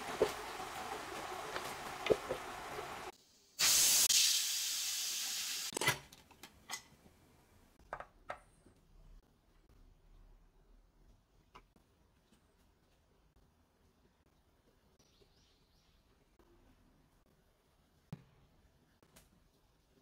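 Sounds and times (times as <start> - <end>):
meat sizzling in a skillet: 0.0 - 5.7
pressure cooker venting steam: 0.0 - 5.7.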